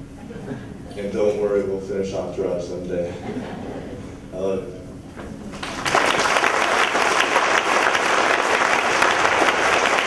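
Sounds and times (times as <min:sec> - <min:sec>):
audience applauding: 0:05.6 - 0:10.0.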